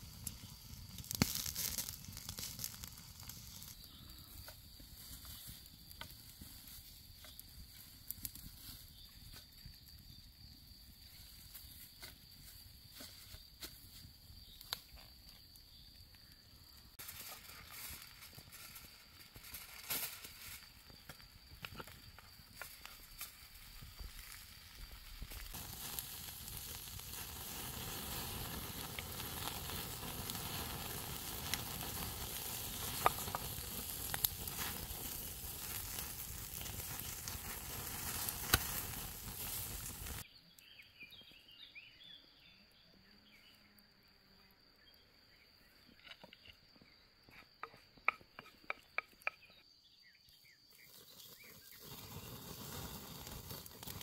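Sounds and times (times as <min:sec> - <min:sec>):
fat sizzling: 0:00.0 - 0:08.8, 0:21.8 - 0:40.2, 0:50.9 - 0:54.0
wood crackling and popping: 0:00.0 - 0:40.3, 0:50.8 - 0:54.0.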